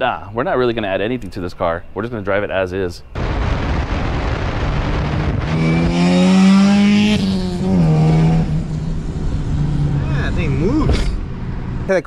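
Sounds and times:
car engine accelerating: 4.1 - 12.0.

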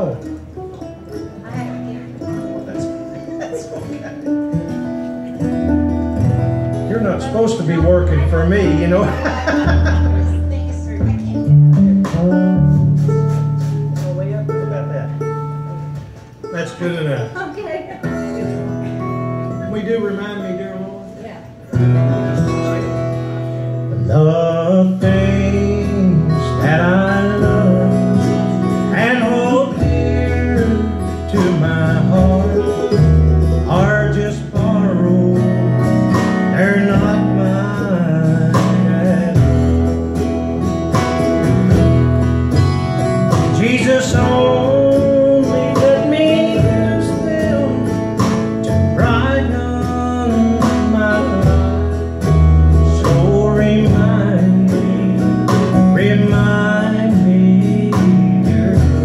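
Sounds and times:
strummed acoustic guitars: 0.0 - 59.0
upright bass: 0.0 - 59.0
lead and harmony singing: 24.0 - 39.9, 43.3 - 47.9, 52.9 - 59.0.

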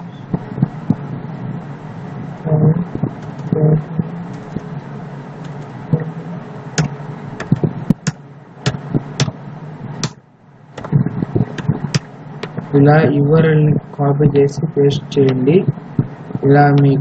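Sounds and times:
short low hums: 0.0 - 10.1
low background hum: 0.0 - 17.0.

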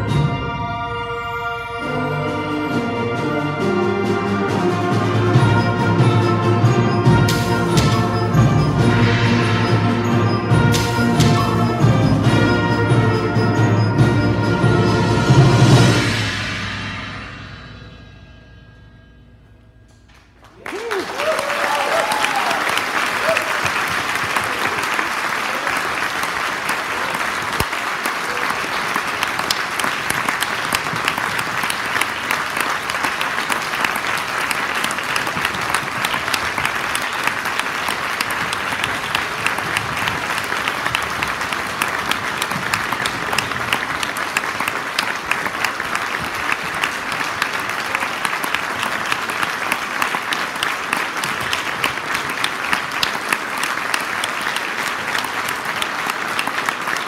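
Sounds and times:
audience applauding: 20.1 - 57.0.

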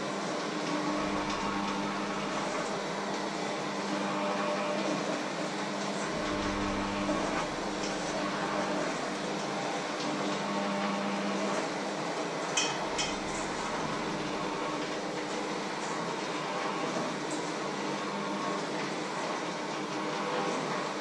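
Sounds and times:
electric mixer motor hum: 0.6 - 5.0, 5.6 - 9.4, 12.8 - 16.8.

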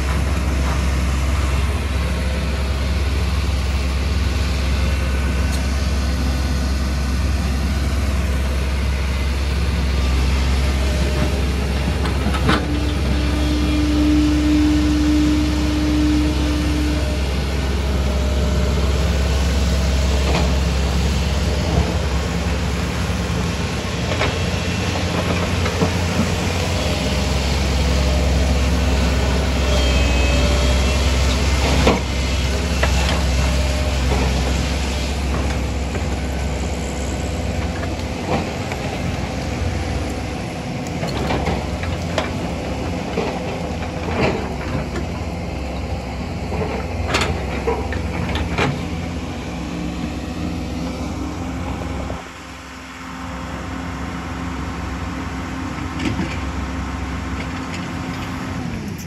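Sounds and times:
excavator diesel engine running: 0.0 - 59.0
knocks and clanks on rocky soil: 40.9 - 45.2, 46.4 - 48.9.

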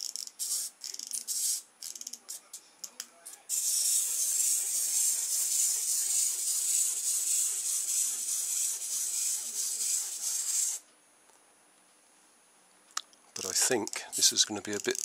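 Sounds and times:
clockwork toy motor whirring: 0.0 - 2.2, 3.5 - 10.8, 13.6 - 15.0.

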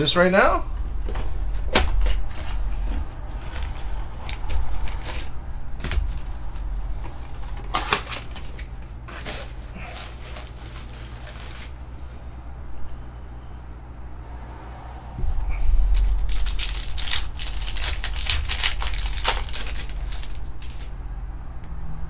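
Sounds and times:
foil packs crinkling and rustling: 0.9 - 12.0, 15.8 - 20.9.

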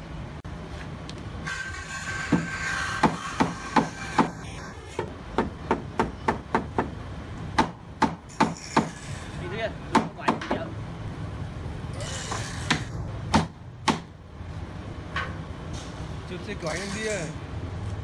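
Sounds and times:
hammer knocking wood joint: 9.9 - 10.7.

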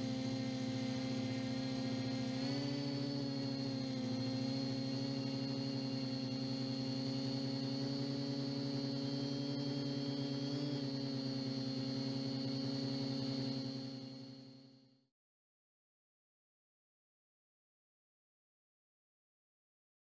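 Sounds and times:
drone propellers humming: 0.0 - 14.4.

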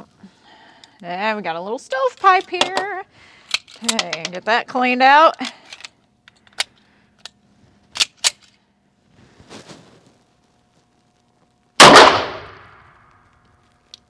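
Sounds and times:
loud pistol shot ringing: 11.8 - 12.8.

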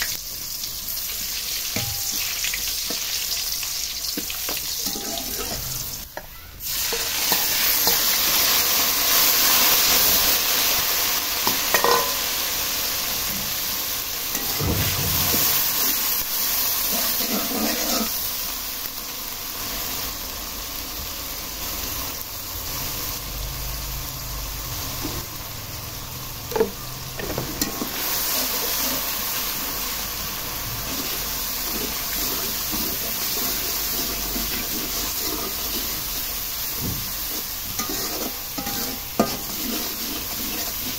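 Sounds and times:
onions sizzling in hot oil: 0.0 - 40.9
spatula scraping pan: 4.2 - 6.0, 16.9 - 18.2, 30.9 - 40.9.

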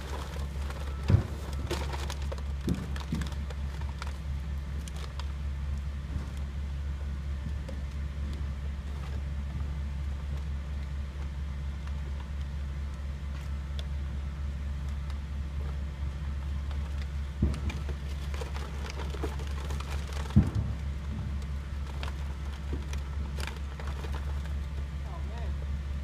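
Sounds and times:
thumps: 0.0 - 3.4, 17.4 - 24.3
low mechanical drone: 0.0 - 26.0.

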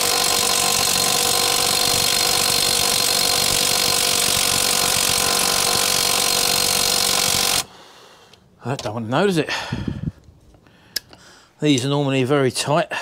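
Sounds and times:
impact wrench hammering: 0.0 - 7.7.

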